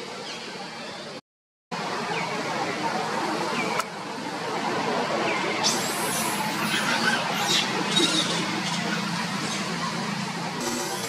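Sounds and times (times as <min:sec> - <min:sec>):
steady background noise: 0:00.0 - 0:11.0
monkey squeals: 0:05.6 - 0:09.7.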